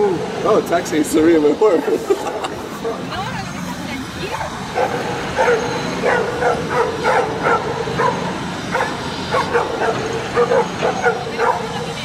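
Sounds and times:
dogs barking: 4.2 - 12.0.

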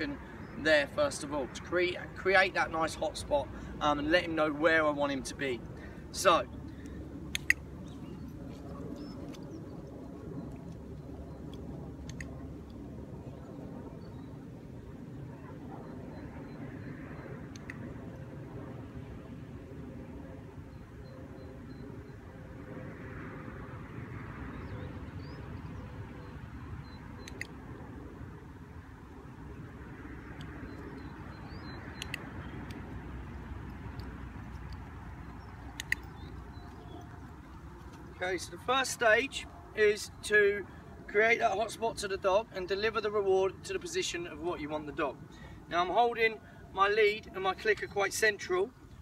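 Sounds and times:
steady low rumble: 0.0 - 49.0
dog-training clicker clicks: 7.3 - 7.6, 27.2 - 27.5, 32.0 - 32.8, 35.7 - 36.2.

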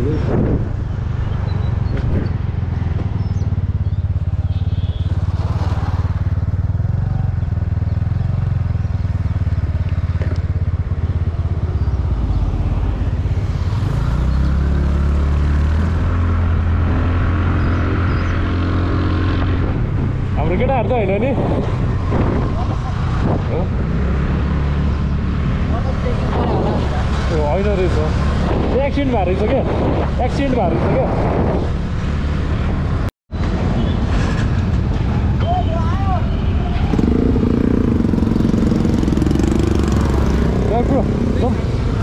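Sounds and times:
motorcycle engine running: 1.4 - 12.4.

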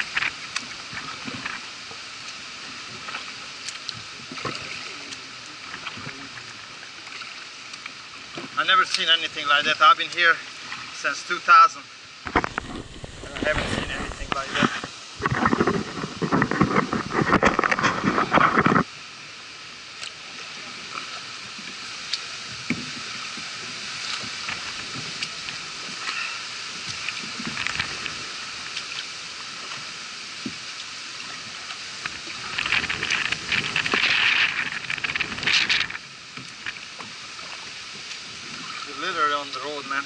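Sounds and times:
water trickling and dripping: 0.0 - 13.4
paddle splashing in water: 0.0 - 40.0.

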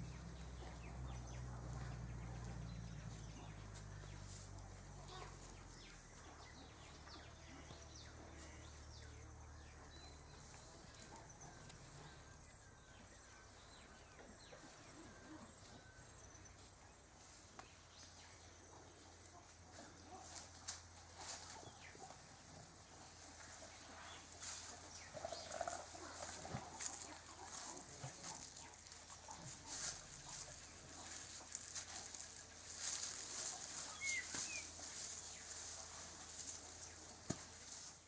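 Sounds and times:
small rustles: 22.9 - 38.0.

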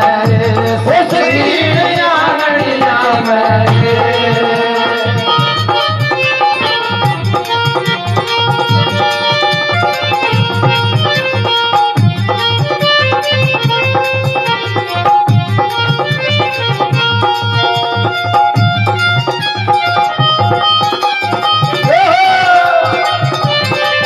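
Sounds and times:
person singing: 0.0 - 6.7, 21.8 - 24.0
harmonium melody: 0.0 - 24.0.

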